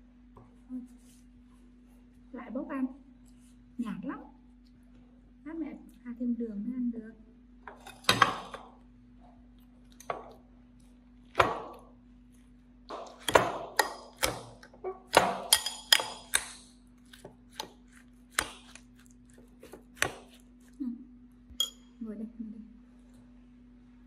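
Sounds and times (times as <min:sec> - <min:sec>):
metal spoon clinking ceramic bowl: 0:15.5 - 0:16.4, 0:21.5 - 0:21.9.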